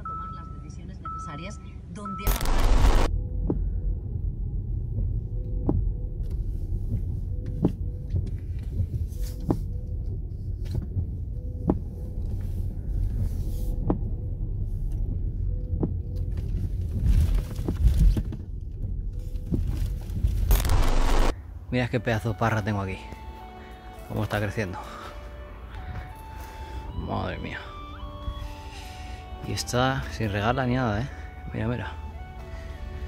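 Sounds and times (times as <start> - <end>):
low car cabin rumble: 3.1 - 20.5.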